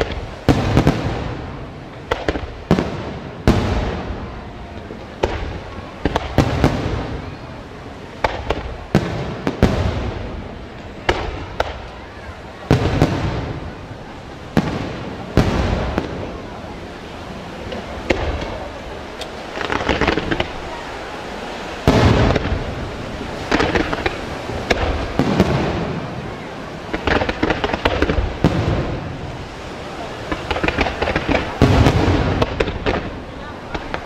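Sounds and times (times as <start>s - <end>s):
firework crackling: 0.0s - 34.0s
firework shells bursting: 17.7s - 20.6s, 30.2s - 34.0s.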